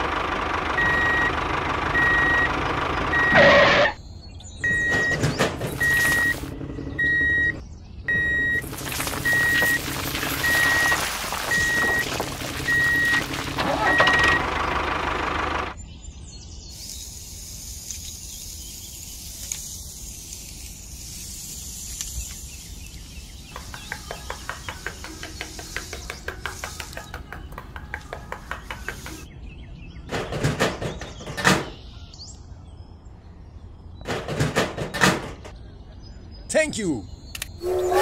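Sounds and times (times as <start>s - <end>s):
sand trickling with soft hiss: 16.6s - 26.9s.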